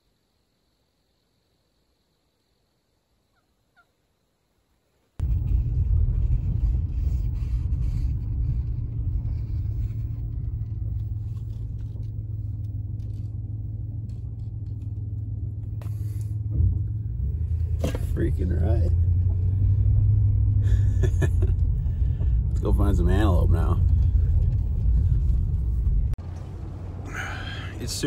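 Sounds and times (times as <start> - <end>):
faint turkey call: 3.3 - 4.0
truck rumble from inside cab: 5.2 - 28.0.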